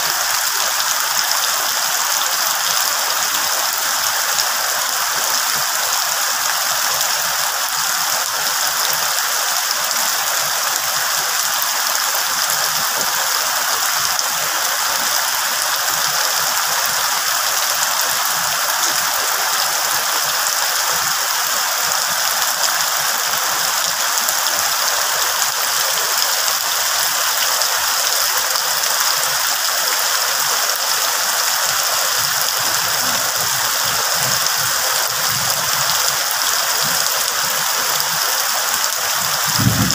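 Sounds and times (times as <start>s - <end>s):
rain on leaves: 0.0s - 39.9s.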